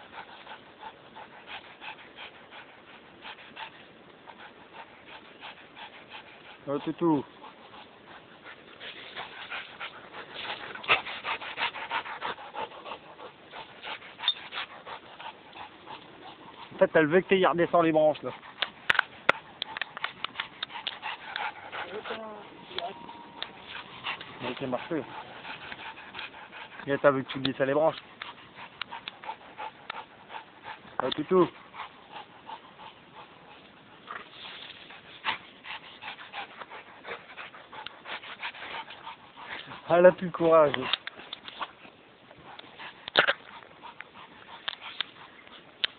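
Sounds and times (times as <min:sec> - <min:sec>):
dog panting quickly: 0:00.0 - 0:45.9
branch scraping and rubbing: 0:33.6 - 0:36.8.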